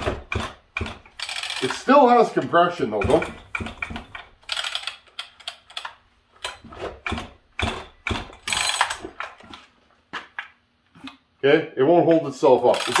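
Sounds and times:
chainsaw recoil starter ratcheting: 0:00.0 - 0:09.3, 0:12.6 - 0:13.0.

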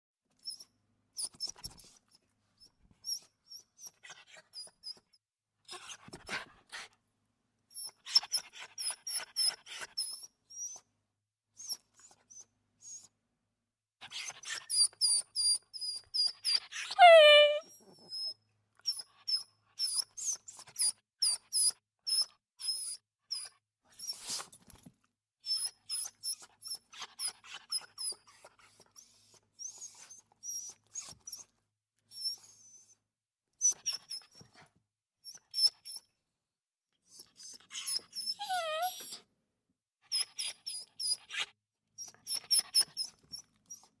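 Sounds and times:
small dog whimpering: 0:16.5 - 0:18.3, 0:37.0 - 0:39.2.

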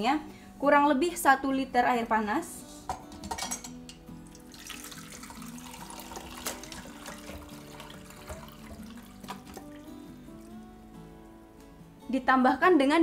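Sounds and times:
water pouring into a bowl: 0:04.2 - 0:10.7.

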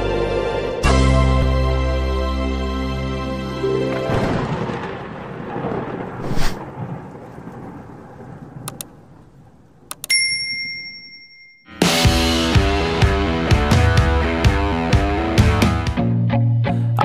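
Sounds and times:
thunder-like rumble with crack: 0:04.1 - 0:09.9
notification bell ding: 0:10.0 - 0:11.8.

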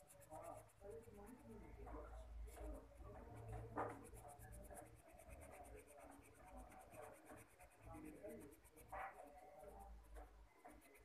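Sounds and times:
pencil scratching on paper: 0:00.0 - 0:11.0
pencil scrape: 0:02.5 - 0:09.2.

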